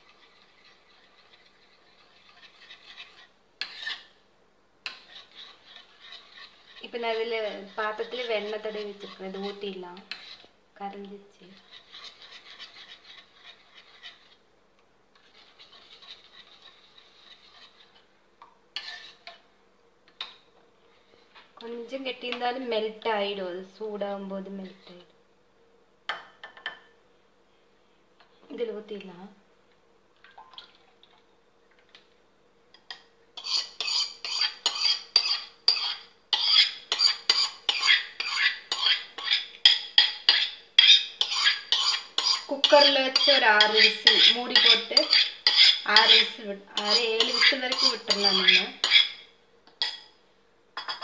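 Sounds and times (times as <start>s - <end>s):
metal spoon stirring in bowl: 0.0s - 4.2s, 4.8s - 14.4s, 15.1s - 18.2s, 18.8s - 19.5s, 32.8s - 50.2s.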